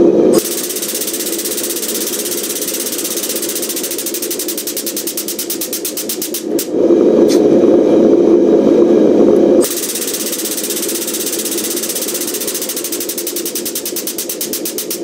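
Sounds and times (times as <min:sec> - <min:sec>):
steady drone: 0:00.0 - 0:15.0
air-driven pump chattering: 0:00.3 - 0:07.4, 0:09.6 - 0:15.0.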